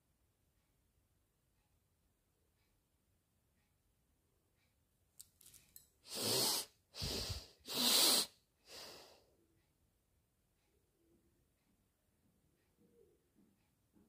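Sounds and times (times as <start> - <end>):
woman sniffing: 6.1 - 9.1.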